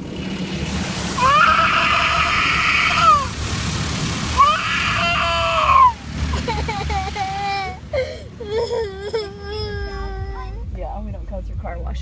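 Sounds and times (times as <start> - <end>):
toddler screaming: 1.2 - 3.3, 4.4 - 7.8.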